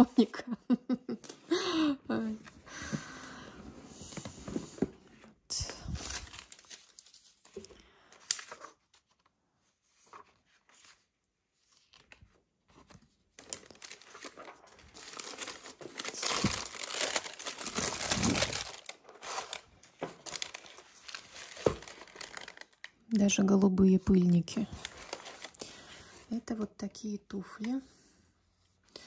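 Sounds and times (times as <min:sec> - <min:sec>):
tissue paper crinkling: 0:05.8 - 0:09.2, 0:09.8 - 0:23.0, 0:24.2 - 0:26.3.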